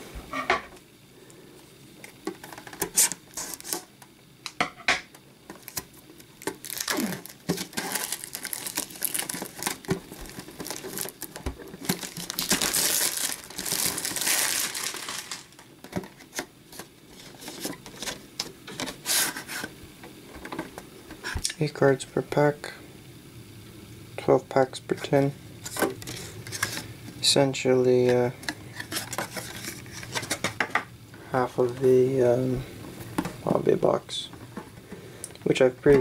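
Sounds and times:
plastic shrink wrap tearing and crinkling: 2.4 - 3.9, 5.6 - 19.7.

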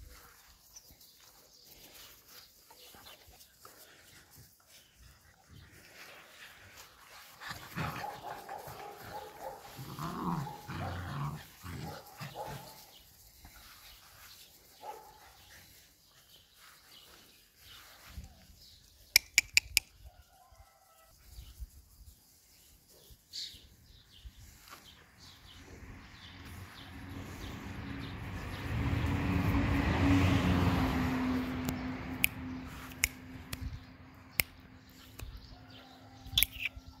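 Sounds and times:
birds chirping: 0.1 - 19.8
sharp clicks: 19.2 - 19.9
passing engine: 24.9 - 35.3.

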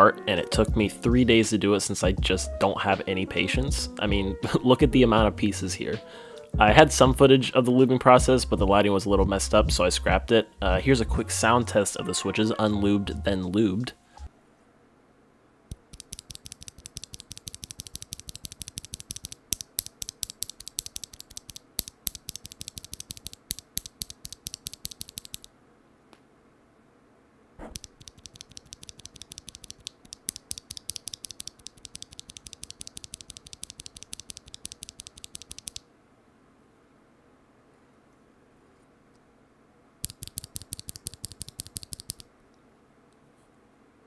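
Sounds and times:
keyboard switch clicking: 27.7 - 35.8, 40.0 - 42.2.

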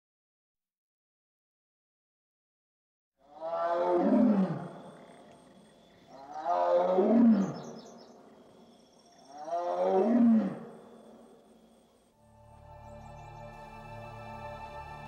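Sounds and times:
tiger roaring: 3.3 - 7.8, 9.2 - 10.8.

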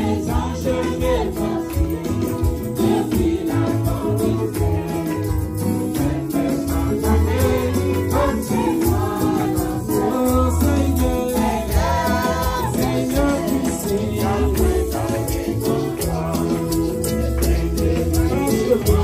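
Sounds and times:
worship band with singing: 0.0 - 19.0.

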